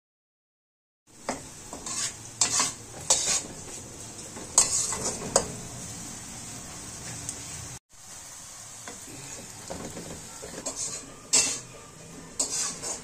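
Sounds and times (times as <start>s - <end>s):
onions sizzling in oil: 1.1s - 13.0s
metal spatula scraping pan: 1.3s - 3.8s, 4.4s - 5.7s, 9.3s - 13.0s.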